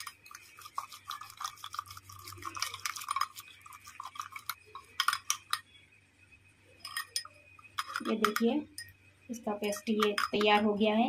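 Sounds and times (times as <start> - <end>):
metal beaters whisking batter in bowl: 0.0 - 5.6, 9.6 - 10.8.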